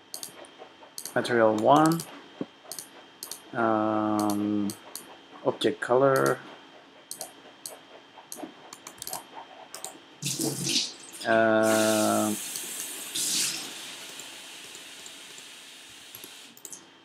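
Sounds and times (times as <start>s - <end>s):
hiss: 11.5s - 16.6s.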